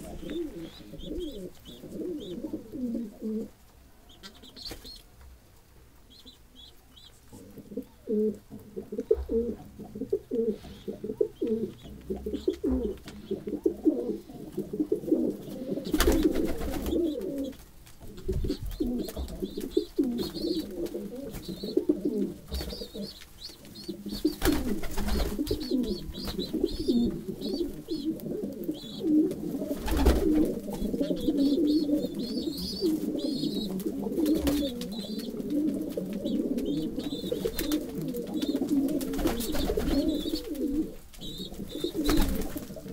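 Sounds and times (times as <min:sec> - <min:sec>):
pigeons cooing: 0:00.0 - 0:05.0, 0:06.1 - 0:42.9
wing flaps: 0:24.2 - 0:25.6, 0:38.9 - 0:40.6.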